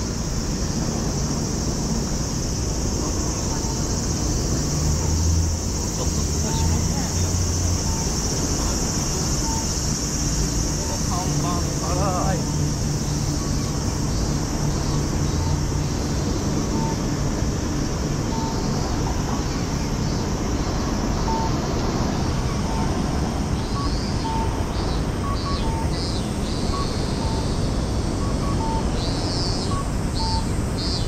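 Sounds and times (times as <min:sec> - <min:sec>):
city traffic hum: 0:00.0 - 0:31.0.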